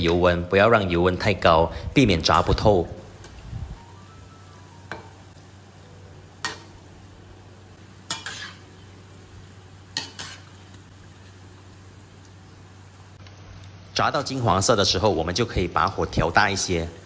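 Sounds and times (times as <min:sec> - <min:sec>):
deep-frying sizzle in oil: 0:00.0 - 0:17.0.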